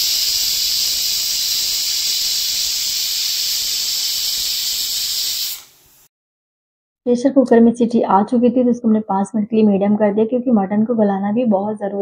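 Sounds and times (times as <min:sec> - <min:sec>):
pressure cooker steam hissing: 0:00.0 - 0:06.1.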